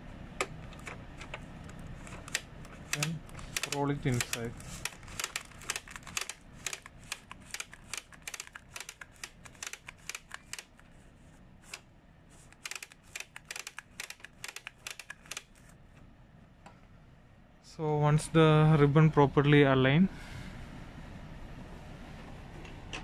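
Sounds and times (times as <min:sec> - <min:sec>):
printer ribbon spindle clicking: 0:00.7 - 0:10.8, 0:12.4 - 0:15.7.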